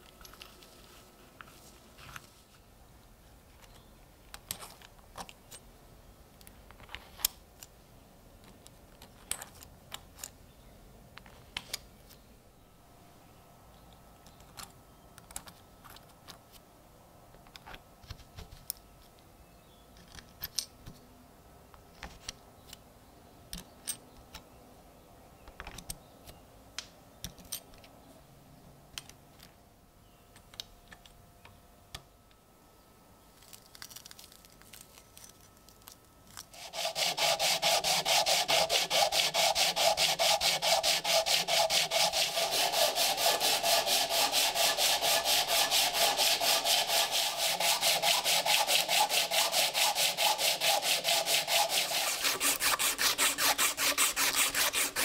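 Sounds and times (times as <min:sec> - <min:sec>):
hand sanding with sandpaper: 0:36.6 - 0:55.0.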